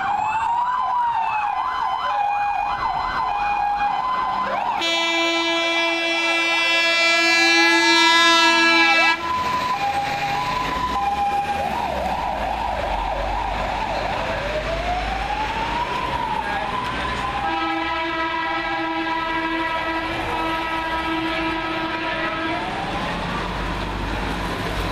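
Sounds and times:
fire engine siren: 0.0s - 24.9s
loud horn blaring: 4.7s - 9.5s, 17.4s - 23.0s.

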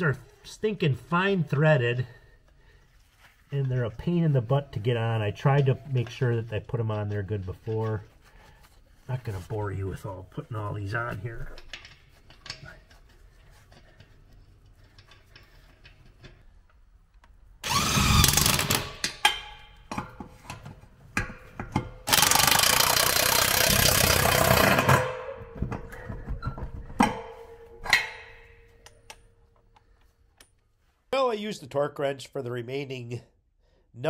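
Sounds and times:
impact wrench running nuts: 17.6s - 20.1s, 21.4s - 26.0s.

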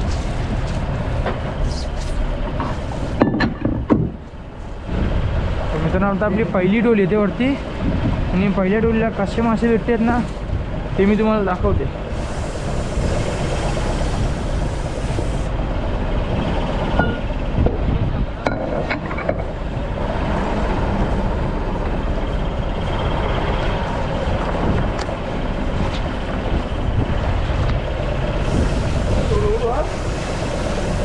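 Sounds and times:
boat engine rumble: 0.0s - 31.0s.

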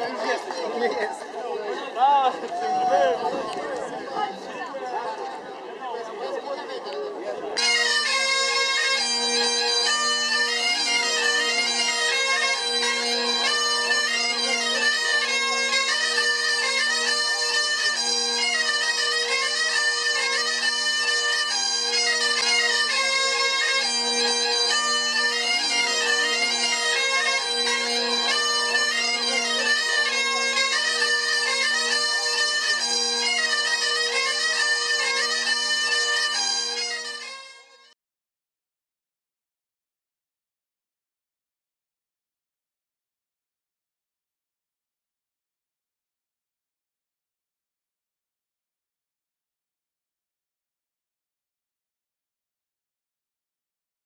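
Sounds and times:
bagpipe music: 7.6s - 38.0s.

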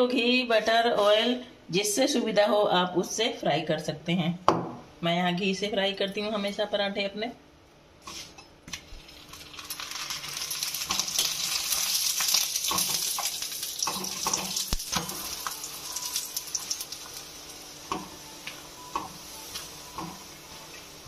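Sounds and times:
ghee sizzling on hot griddle: 8.0s - 21.0s.

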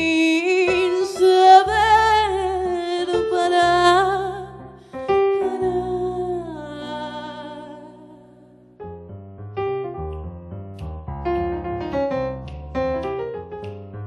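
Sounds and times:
digital piano chords: 0.0s - 14.0s
woman singing with vibrato: 5.4s - 8.3s.

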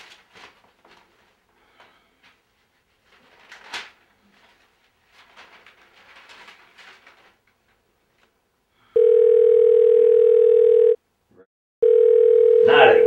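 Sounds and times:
newspaper pages rustling: 0.0s - 8.4s
telephone electronic ringer: 9.0s - 11.0s, 11.8s - 13.0s.

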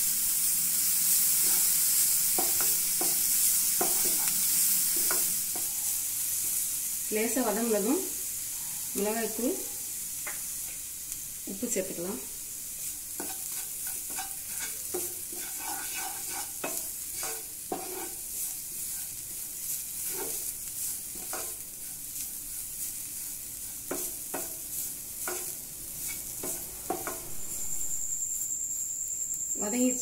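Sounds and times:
vegetables sizzling: 0.0s - 30.0s
wooden spatula scraping pan: 13.2s - 27.9s
high-pitched tone: 27.3s - 28.6s.

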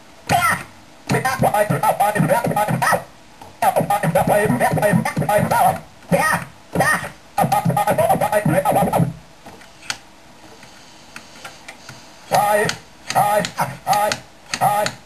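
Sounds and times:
turntable scratching: 0.3s - 9.2s, 12.0s - 15.0s.

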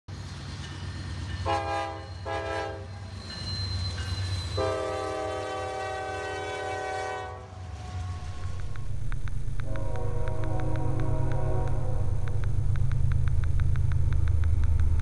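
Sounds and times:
train horn blasts: 1.4s - 3.1s, 4.6s - 8.8s, 9.6s - 12.4s
low rumble: 7.6s - 15.0s.

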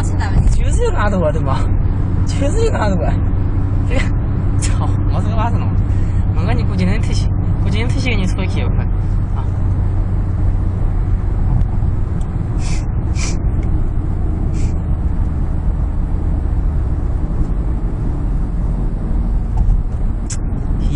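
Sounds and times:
car interior road rumble: 0.0s - 20.9s
brief hisses: 12.6s - 13.4s.

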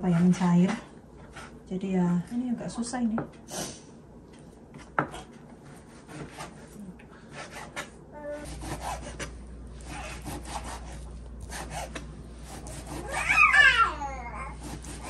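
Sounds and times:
knife sawing meat on cutting board: 5.6s - 13.6s, 14.4s - 15.0s.

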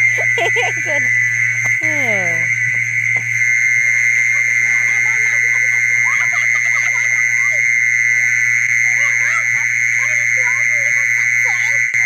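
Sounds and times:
cicada call through speaker: 0.0s - 12.0s
faint voices and laughter: 0.1s - 1.1s, 3.9s - 7.7s, 8.9s - 12.0s.

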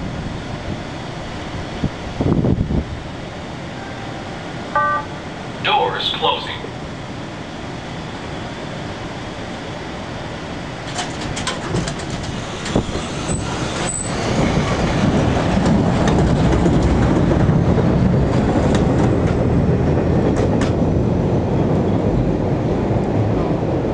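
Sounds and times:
low train rumble: 0.0s - 23.9s
train wheels clicking on rails: 10.7s - 22.2s
high wheel squeals: 12.5s - 14.7s.

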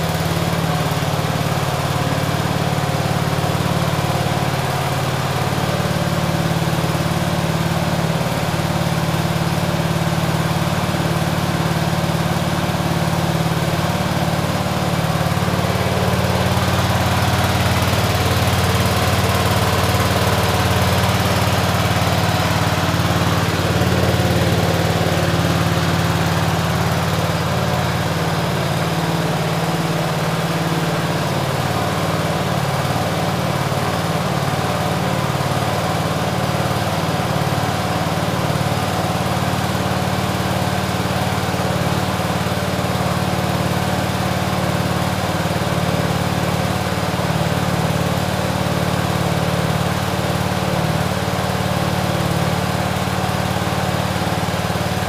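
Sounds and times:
tractor engine running: 0.0s - 55.0s.

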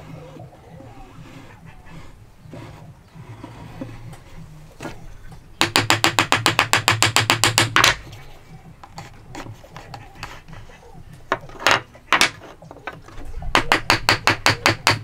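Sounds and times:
hammer tapping wood: 5.6s - 8.0s, 11.3s - 15.0s.

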